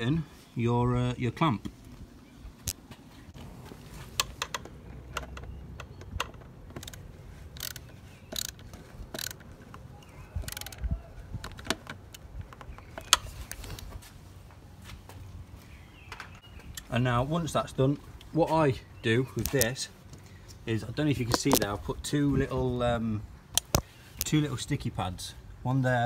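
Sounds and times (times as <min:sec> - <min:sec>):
screwdriver tightening metal clamp: 0:07.6 - 0:09.5, 0:10.4 - 0:10.8.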